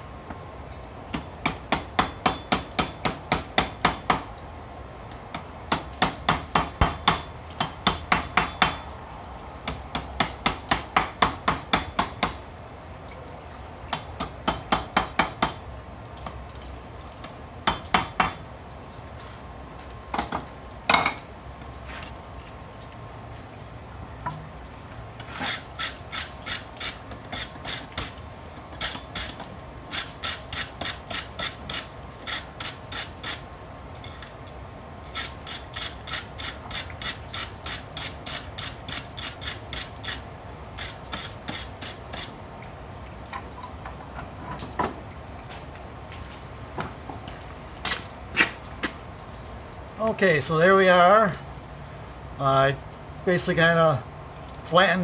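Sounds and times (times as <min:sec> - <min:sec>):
hammer striking hot metal on anvil: 0:01.7 - 0:04.2, 0:05.7 - 0:08.8
wire brush scrubbing steel: 0:25.3 - 0:28.2, 0:28.8 - 0:33.4, 0:35.1 - 0:40.2.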